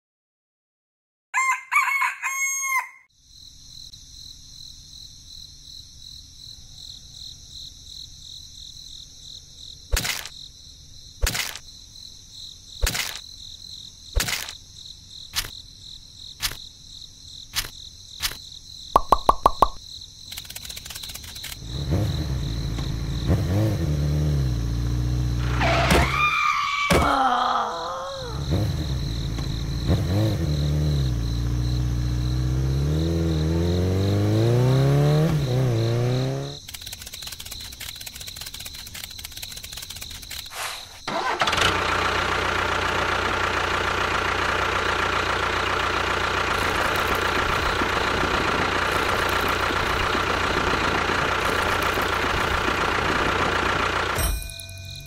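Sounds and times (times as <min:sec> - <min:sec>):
rooster crowing: 0:01.3 - 0:03.1
sharp clicks: 0:09.9 - 0:10.4, 0:11.2 - 0:11.7, 0:12.8 - 0:13.2, 0:14.2 - 0:14.6, 0:15.3 - 0:15.5, 0:16.4 - 0:16.6, 0:17.5 - 0:18.4, 0:19.0 - 0:21.6, 0:36.6 - 0:40.5
quick rattle of strokes: 0:36.6 - 0:41.1
motor running loudly: 0:41.5 - 0:54.2.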